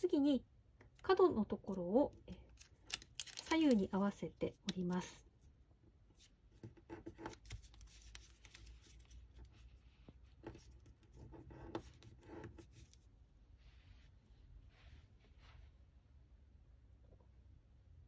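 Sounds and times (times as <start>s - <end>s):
paper being folded and creased: 2.5s - 4.1s, 6.2s - 11.1s.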